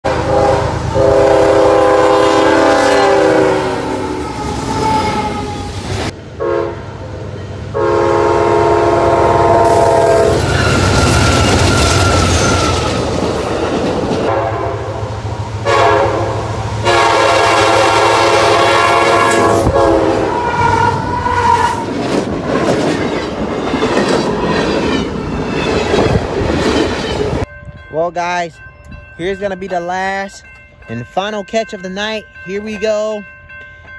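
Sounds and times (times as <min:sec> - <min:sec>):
locomotive air horn: 0:00.0 - 0:05.7, 0:06.4 - 0:06.9, 0:07.7 - 0:12.9, 0:14.3 - 0:21.8.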